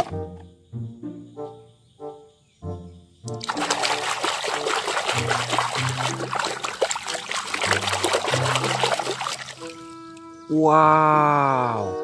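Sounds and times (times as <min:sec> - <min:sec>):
water splashing in plastic tub: 0:03.3 - 0:09.9.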